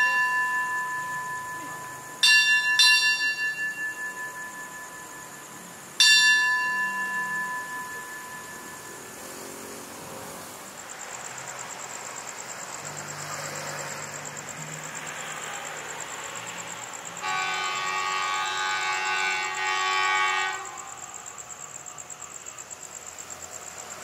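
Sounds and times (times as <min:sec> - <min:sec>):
metal signal bell ringing: 0:00.0 - 0:09.4
distant diesel locomotive hum: 0:00.0 - 0:24.0.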